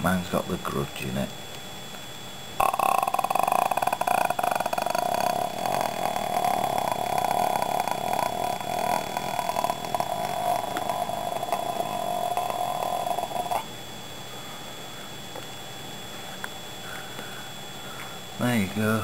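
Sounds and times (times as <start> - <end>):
rattling throat croak: 2.6 - 13.7.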